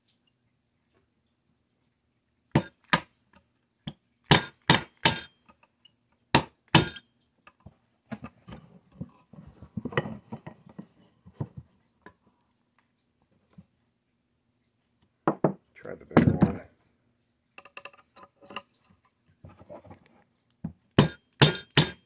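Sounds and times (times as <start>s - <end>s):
hammer tapping metal punch: 4.3s - 5.3s, 6.8s - 7.0s, 21.0s - 22.0s.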